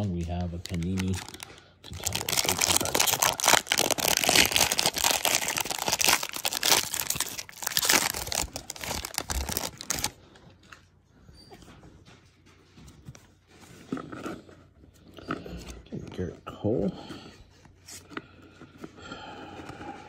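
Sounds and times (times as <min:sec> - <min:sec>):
foil wrapper crinkling and tearing: 0:00.5 - 0:10.2.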